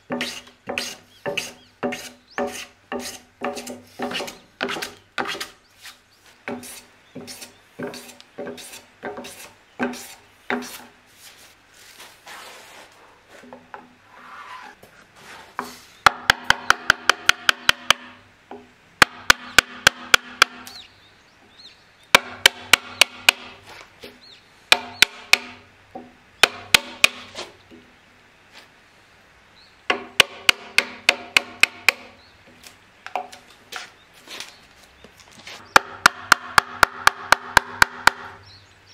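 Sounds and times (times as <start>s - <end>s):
hand plane strokes on wood: 0.1s - 12.9s.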